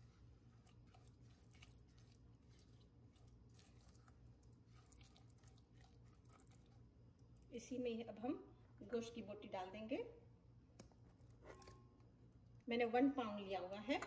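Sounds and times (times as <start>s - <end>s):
spatula stirring thick paste in pot: 0.0s - 6.8s.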